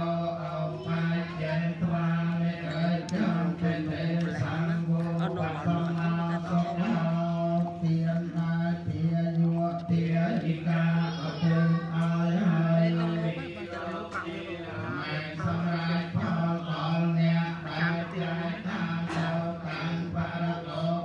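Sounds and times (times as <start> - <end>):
voices chanting in monotone: 0.0 - 21.0.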